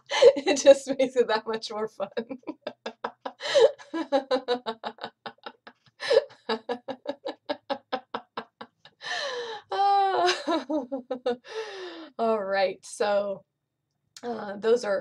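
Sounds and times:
woman laughing heartily: 0.0s - 0.5s, 2.1s - 12.0s.

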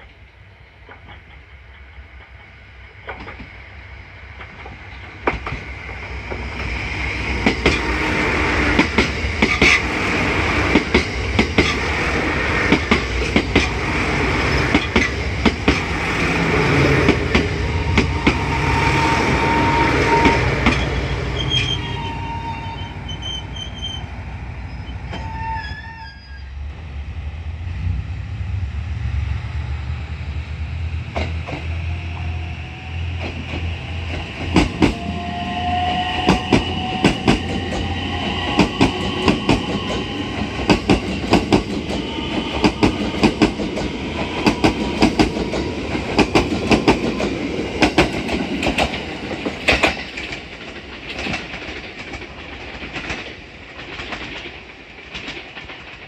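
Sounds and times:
train wheels clicking over joints: 0.0s - 3.6s, 4.3s - 21.8s, 31.1s - 32.2s, 33.1s - 35.2s, 35.9s - 56.0s
low hum: 26.6s - 34.6s.

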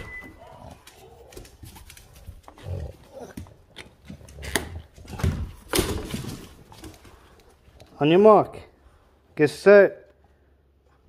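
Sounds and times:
dogs making rough noises: 0.2s - 5.7s.

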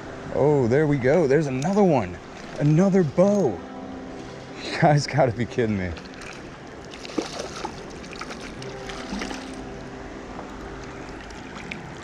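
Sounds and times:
creek water running: 0.0s - 12.0s
fish splashing at surface: 6.0s - 9.6s.

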